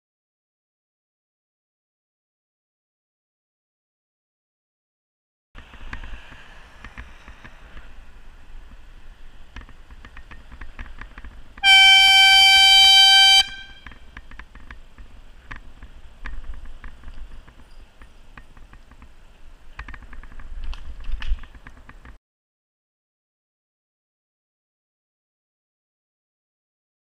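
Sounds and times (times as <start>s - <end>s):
bicycle rattles and clicks: 8.6s - 11.7s, 13.7s - 22.2s
horn blast: 11.6s - 13.9s.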